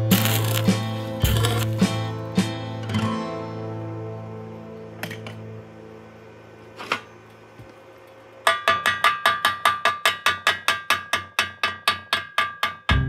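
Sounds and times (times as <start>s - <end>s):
chipping hammer ringing metal tube: 8.4s - 13.0s.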